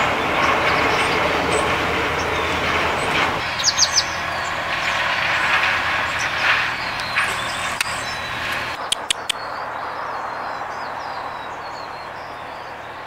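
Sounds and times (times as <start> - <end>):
passing vehicle engine hum: 0.0 - 13.0
short high bird chirps: 7.0 - 9.6.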